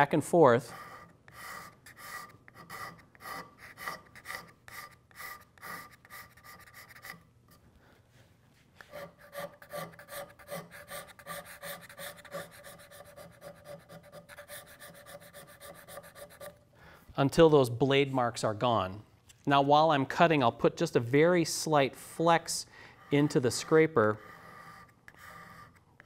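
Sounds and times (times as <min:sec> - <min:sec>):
card scraper scraping wood: 0:00.8 - 0:07.2, 0:08.8 - 0:16.6, 0:23.0 - 0:26.0.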